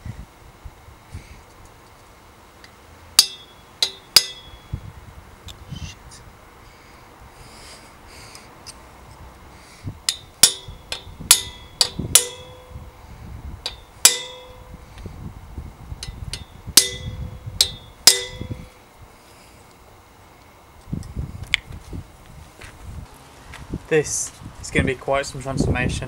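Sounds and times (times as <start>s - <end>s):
hammer tapping metal on metal: 3.2s - 4.6s, 10.1s - 12.7s, 13.7s - 14.7s, 16.0s - 18.6s.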